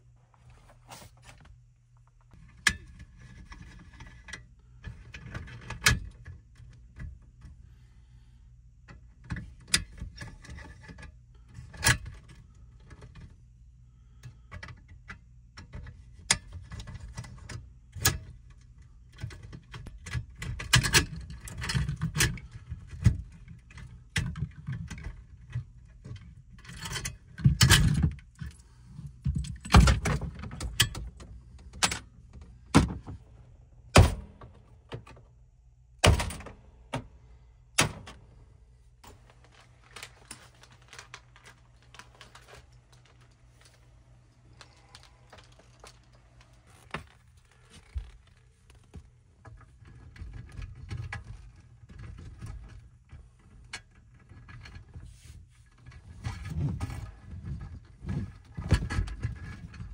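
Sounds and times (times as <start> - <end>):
low steady hum: 0.0 - 59.9
wires being bent into place: 39.0 - 51.3.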